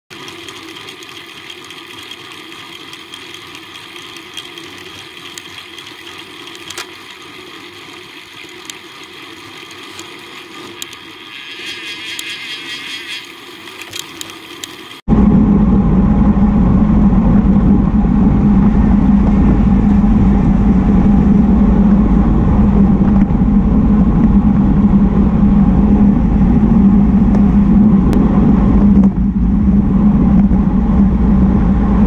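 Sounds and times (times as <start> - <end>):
bike tyres rolling on asphalt: 0.1 - 15.0
wind: 0.1 - 32.0.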